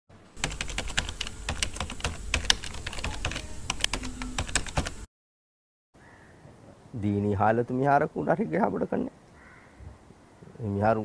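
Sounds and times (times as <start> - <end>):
keyboard typing clicks: 0.4 - 5.0.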